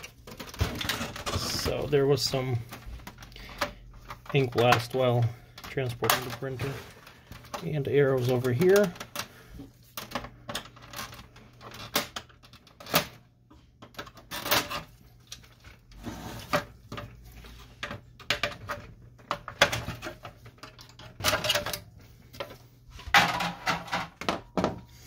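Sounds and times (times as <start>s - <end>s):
plastic cover clicking and snapping: 0.0s - 9.3s, 9.9s - 13.2s, 17.8s - 22.6s.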